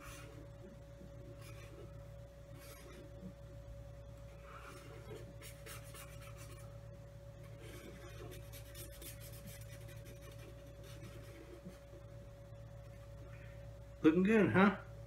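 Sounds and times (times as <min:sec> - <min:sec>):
marker scratching on paper: 0:00.0 - 0:00.5, 0:01.2 - 0:03.3, 0:04.3 - 0:06.7, 0:07.4 - 0:12.0
steady low hum: 0:00.0 - 0:15.0.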